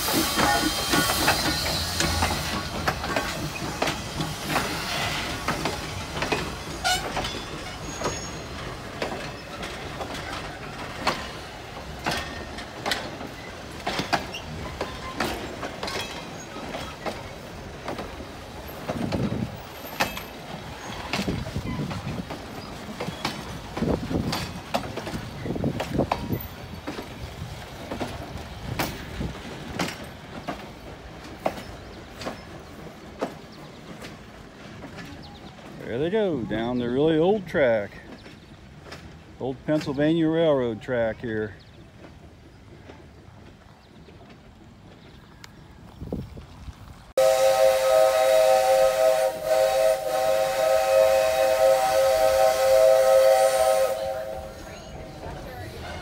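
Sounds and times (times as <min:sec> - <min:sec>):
train wheels clicking over rail joints: 0:00.0 - 0:56.0
wavering low wheel squeals: 0:06.6 - 0:10.8.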